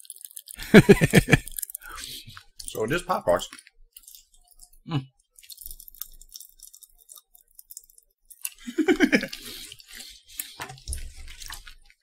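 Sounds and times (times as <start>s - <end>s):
popping candy crackling: 0.0s - 12.0s
person vocal sound: 8.6s - 9.6s.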